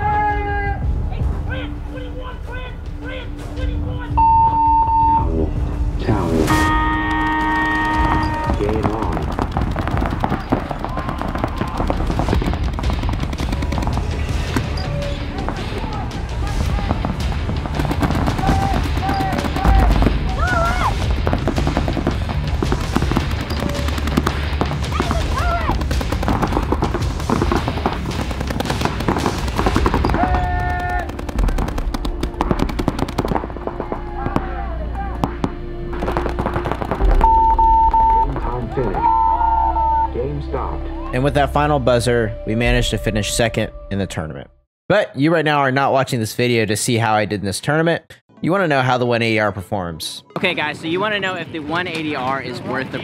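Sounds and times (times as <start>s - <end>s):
paintball guns firing: 6.8s - 37.3s.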